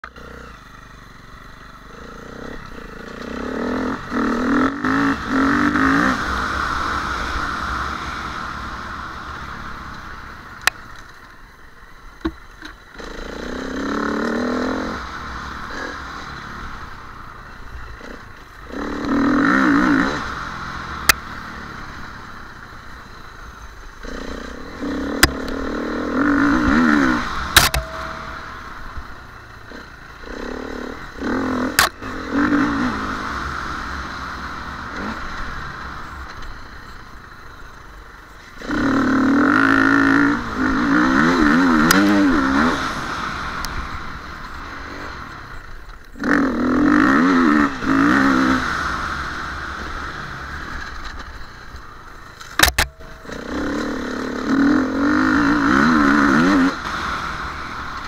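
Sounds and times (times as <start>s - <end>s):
motorcycle engine revving: 0.0s - 58.0s
motorcycle knocking and clattering: 27.6s - 28.4s.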